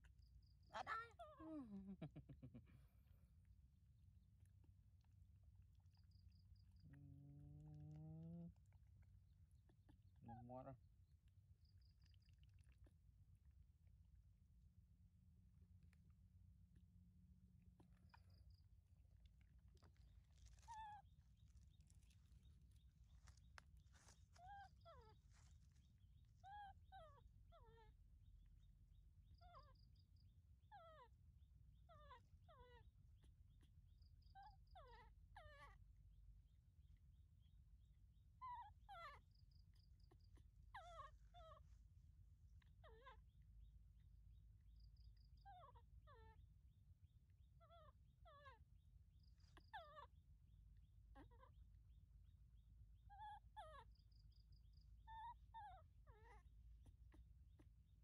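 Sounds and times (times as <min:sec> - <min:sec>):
baby monkey whimpering cries: 0:24.4 - 0:25.5, 0:34.4 - 0:35.8, 0:38.4 - 0:39.2, 0:40.1 - 0:41.6, 0:42.6 - 0:43.2, 0:45.4 - 0:46.4, 0:51.2 - 0:51.6, 0:53.1 - 0:53.9, 0:55.1 - 0:56.5.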